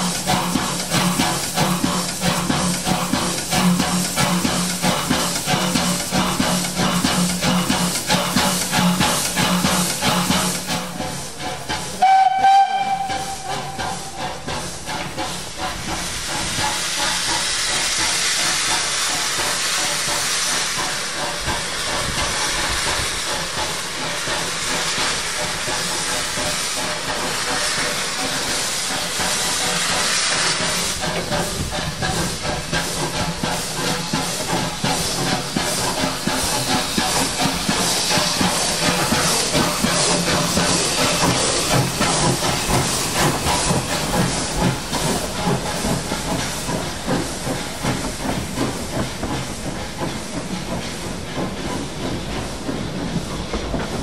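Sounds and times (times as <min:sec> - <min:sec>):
steam locomotive hissing steam: 0:00.0 - 0:54.0
steam whistle blast: 0:12.0 - 0:14.2.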